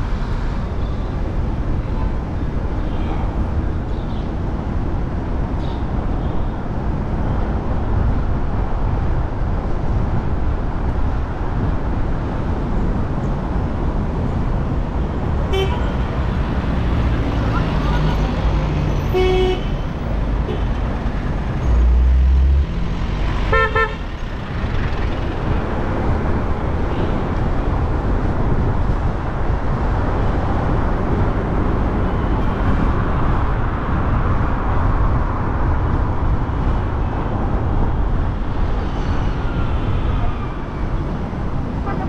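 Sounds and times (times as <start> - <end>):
road traffic: 0.0 - 42.0
car horn toot: 15.5 - 16.0, 19.1 - 19.7, 23.5 - 24.0.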